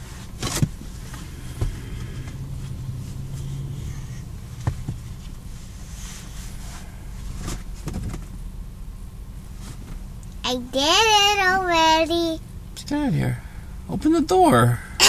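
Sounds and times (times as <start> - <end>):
soft rustles: 0.0 - 8.3, 9.5 - 10.1
car cabin hum: 0.0 - 15.0.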